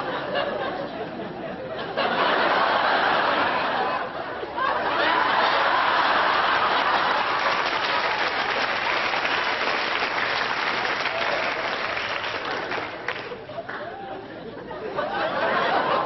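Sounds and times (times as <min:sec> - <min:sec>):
audience laughter: 0:00.0 - 0:08.7, 0:11.1 - 0:16.0
audience applauding: 0:05.1 - 0:14.0.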